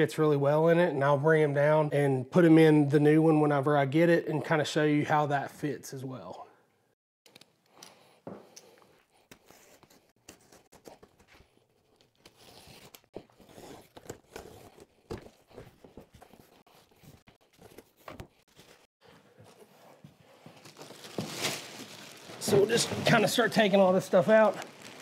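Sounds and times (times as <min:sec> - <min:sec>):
plastic wrap crinkling: 0:19.8 - 0:25.0
cardboard box tearing and rustling: 0:20.6 - 0:23.8.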